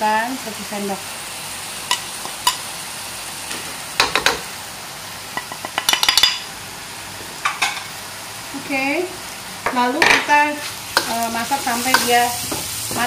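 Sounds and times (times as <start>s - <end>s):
paste sizzling in oil: 0.3s - 4.5s, 7.4s - 13.0s
utensil clinking against a wok: 5.4s - 6.4s, 11.9s - 13.0s.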